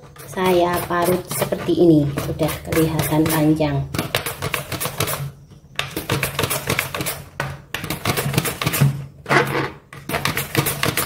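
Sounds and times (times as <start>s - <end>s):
carrot scraping on grater: 0.0s - 3.6s.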